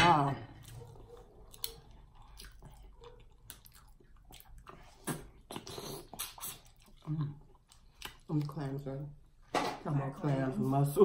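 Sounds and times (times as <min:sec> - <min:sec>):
chewing: 0:00.5 - 0:08.8.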